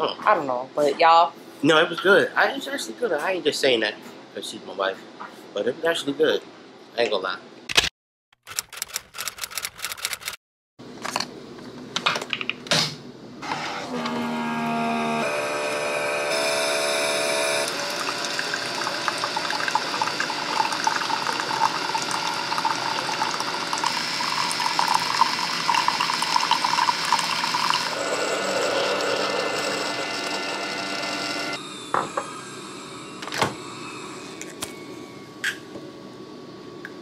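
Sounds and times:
coffee maker pump humming: 13.4s - 35.6s
coffee pouring into mug: 17.6s - 31.2s.

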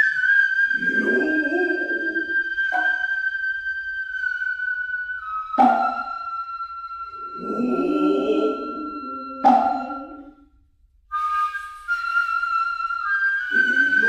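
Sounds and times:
bamboo flute high piercing tones: 0.0s - 14.0s
sharp hand-drum stroke: 5.6s - 6.1s.

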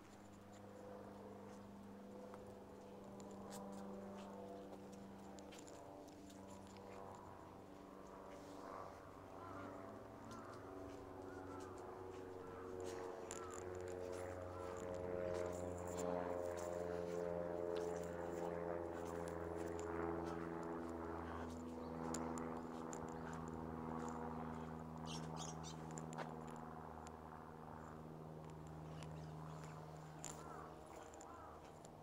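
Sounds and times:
low mechanical hum: 0.0s - 32.0s.

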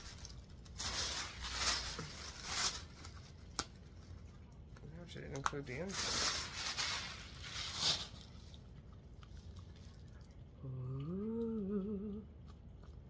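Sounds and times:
wrapping paper rustling: 0.0s - 4.2s, 4.9s - 8.6s
person humming: 10.6s - 12.3s.

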